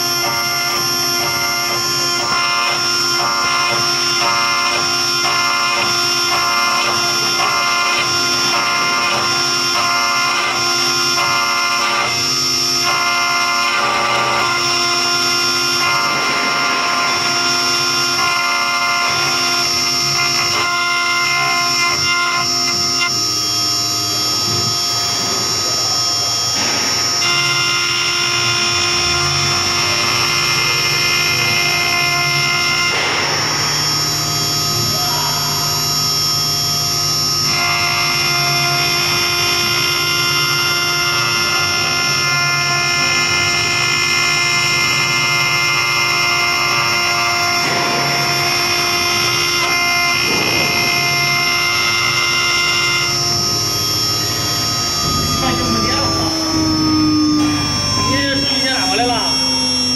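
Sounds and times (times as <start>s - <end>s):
router spindle high whine: 0.0s - 59.9s
low hum: 52.2s - 59.9s.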